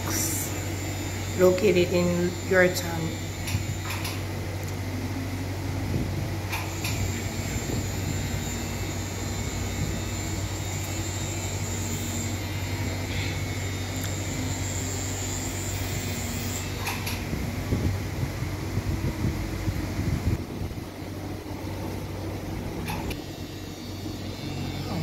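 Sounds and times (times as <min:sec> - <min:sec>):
tattoo machine humming: 0:00.0 - 0:04.4, 0:06.5 - 0:17.4, 0:22.6 - 0:25.0.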